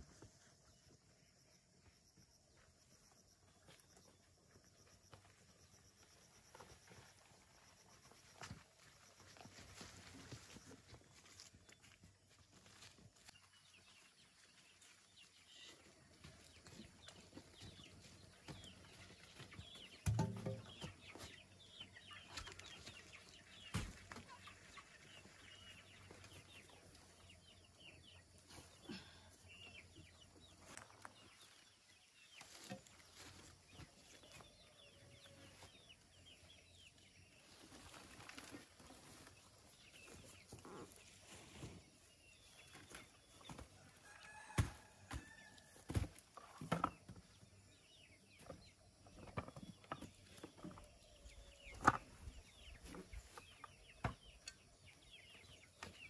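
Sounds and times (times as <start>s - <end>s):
chickens clucking: 14.0s - 31.7s, 32.3s - 56.0s.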